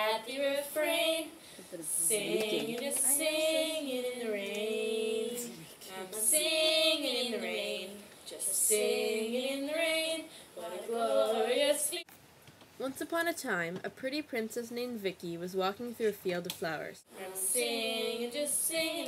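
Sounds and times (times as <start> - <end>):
woman singing slow melody: 2.0 - 12.0.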